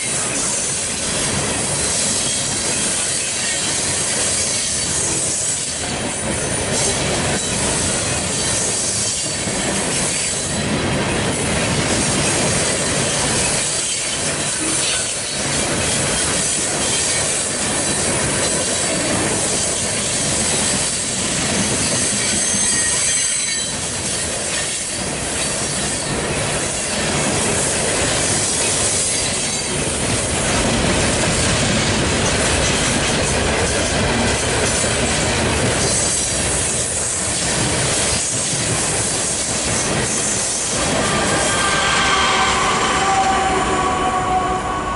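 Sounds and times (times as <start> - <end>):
train cars rumbling over rails: 0.0 - 44.9
high-pitched wheel squeal: 21.8 - 23.8, 40.6 - 44.9.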